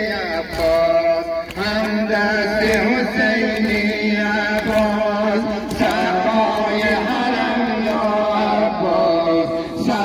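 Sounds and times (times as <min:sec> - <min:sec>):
voices chanting a lament: 0:00.0 - 0:10.0.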